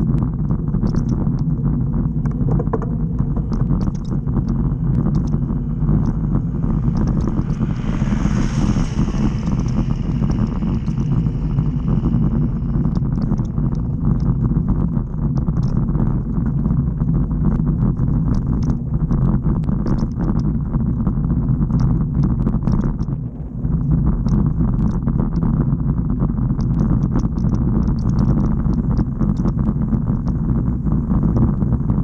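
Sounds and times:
van passing: 0:05.5 - 0:13.0.

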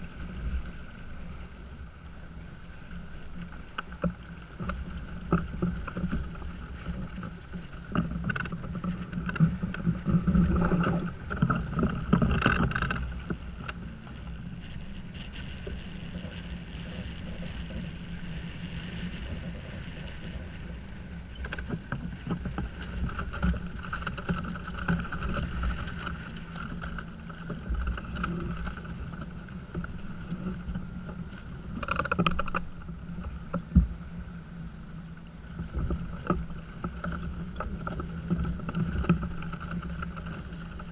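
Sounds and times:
water rushing along yacht hull: 0:00.0 - 0:40.9.

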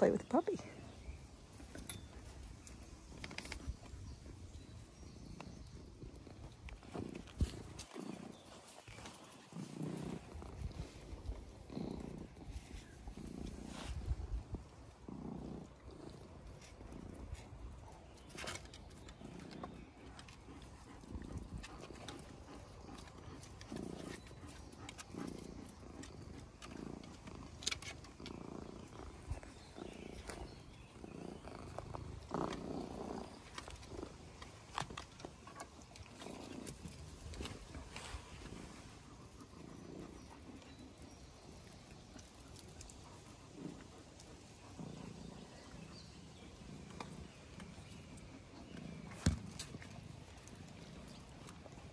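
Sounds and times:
puppies scuffling on stone: 0:05.2 - 0:14.7, 0:31.3 - 0:39.6.

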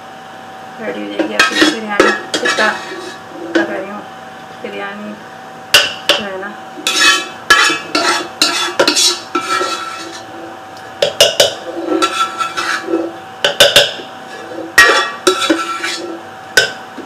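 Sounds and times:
faint steady hum: 0:00.0 - 0:17.0
spoon scraping a pot: 0:01.2 - 0:03.7, 0:06.8 - 0:16.8.

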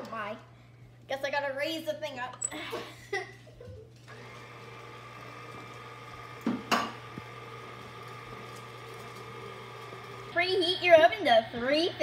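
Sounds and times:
stand mixer motor running: 0:04.0 - 0:12.0.

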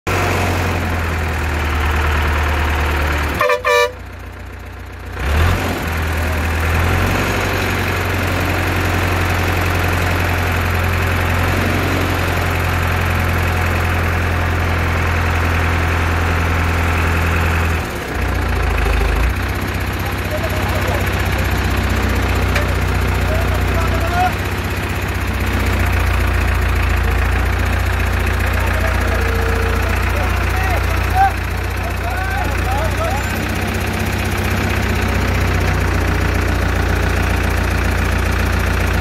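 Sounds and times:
crane engine humming: 0:00.1 - 0:05.2, 0:05.9 - 0:39.0
short horn toots: 0:03.4 - 0:04.1.

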